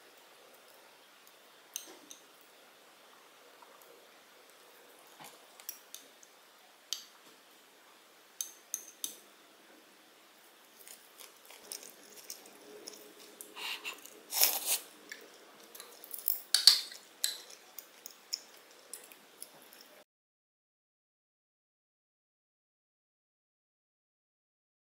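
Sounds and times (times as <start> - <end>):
wooden spoon scraping pot: 10.8 - 14.9
tableware clicks: 15.8 - 19.9.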